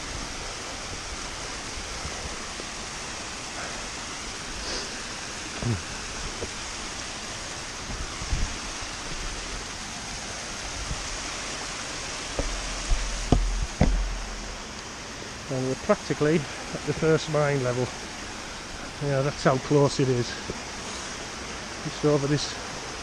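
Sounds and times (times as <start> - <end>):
stream rushing over rocks: 0.0 - 23.0
low thumps and knocks: 12.2 - 14.7.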